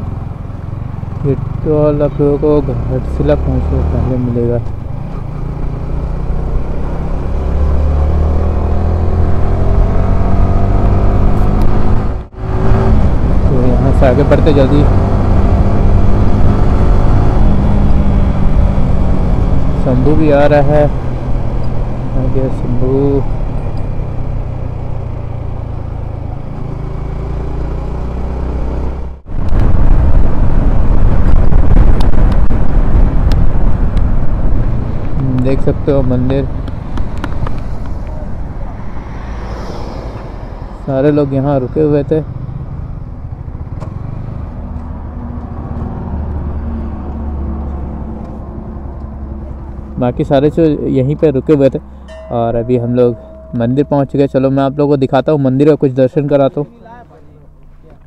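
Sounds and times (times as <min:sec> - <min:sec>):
motorcycle engine accelerating: 0:00.0 - 0:56.7
wind buffeting clicks: 0:21.3 - 0:22.0, 0:29.4 - 0:35.6, 0:36.2 - 0:38.5
wind rushing on microphone: 0:28.9 - 0:43.8.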